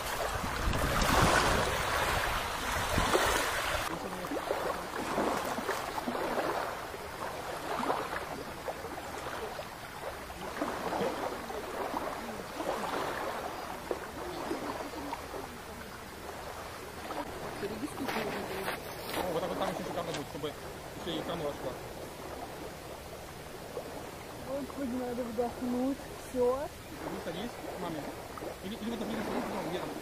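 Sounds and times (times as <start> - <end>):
wind buffeting microphone: 0.0 - 6.7
small waves lapping on shore: 0.0 - 30.0.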